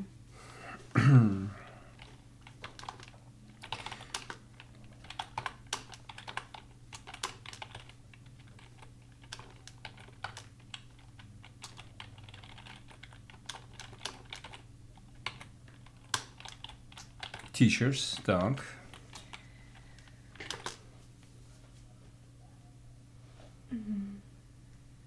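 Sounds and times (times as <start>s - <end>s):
faint low hum: 0.0s - 25.0s
keyboard typing clicks: 2.0s - 14.6s, 15.2s - 17.5s.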